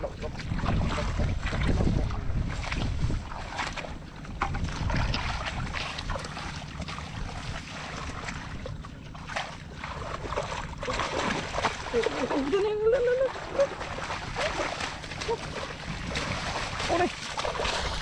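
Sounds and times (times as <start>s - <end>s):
wind on microphone: 0.0s - 6.4s, 10.3s - 18.0s
hands splashing in muddy water: 0.3s - 18.0s.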